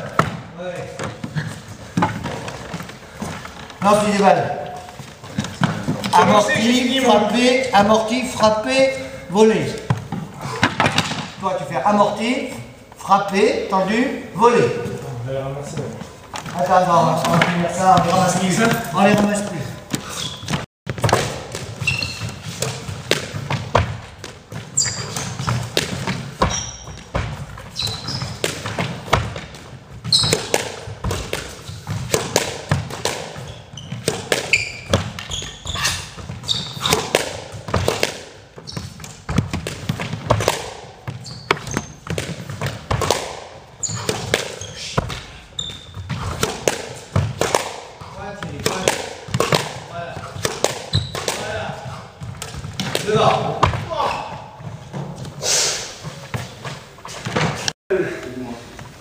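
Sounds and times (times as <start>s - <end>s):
rackets hitting ball: 0.0s - 15.0s, 15.6s - 57.8s
shoes squeaking on court: 0.0s - 57.8s
squash ball hitting wall: 20.9s - 27.5s, 30.2s - 35.4s, 36.1s - 45.4s, 46.0s - 55.0s.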